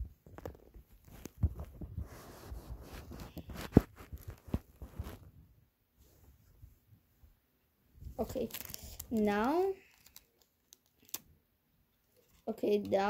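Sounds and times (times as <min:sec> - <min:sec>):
hands handling tape: 0:08.2 - 0:11.3.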